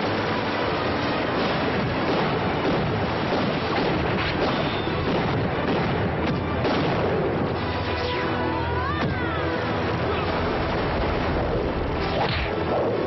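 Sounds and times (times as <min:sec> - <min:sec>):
pyrotechnic explosions: 0:00.7 - 0:08.4
sharp bangs: 0:01.3 - 0:07.9.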